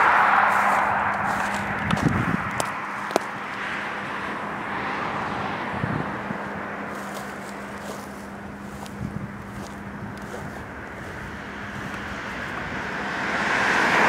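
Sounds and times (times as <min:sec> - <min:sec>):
diesel locomotive idling: 0:05.7 - 0:13.2.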